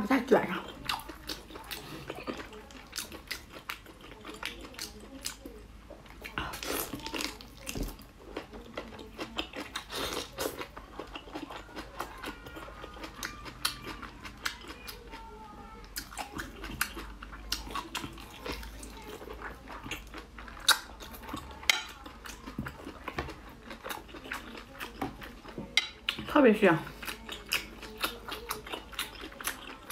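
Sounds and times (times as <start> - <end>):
wet chewing and lip smacks: 0.6 - 15.2, 15.9 - 26.3, 26.9 - 29.9.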